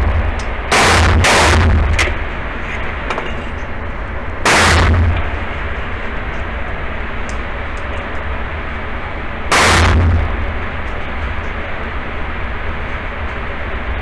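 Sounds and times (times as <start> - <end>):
pistol shot: 0.7 - 2.0, 4.4 - 5.2, 9.5 - 10.2.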